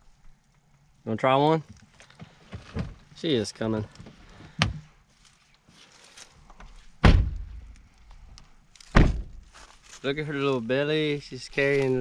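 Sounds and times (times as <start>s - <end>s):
truck door slamming: 7.0s - 7.6s, 8.9s - 9.4s.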